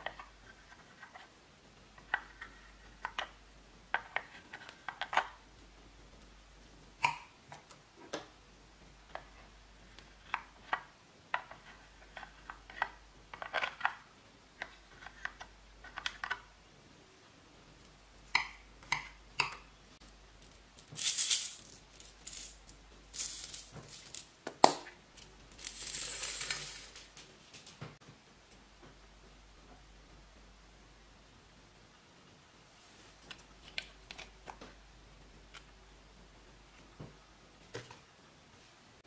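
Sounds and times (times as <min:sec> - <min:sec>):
plastic beads rattling in container: 0:20.4 - 0:24.4, 0:25.2 - 0:27.1.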